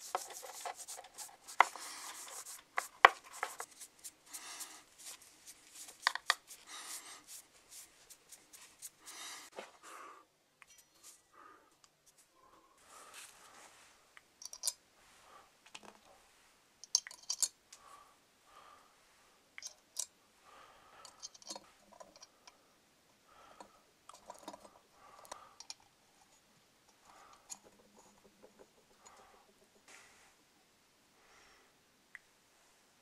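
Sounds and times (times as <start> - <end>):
small parts clicking and tapping: 5.8 - 6.5, 14.4 - 14.8, 16.8 - 17.6, 19.6 - 20.1, 21.0 - 22.6, 23.6 - 26.0.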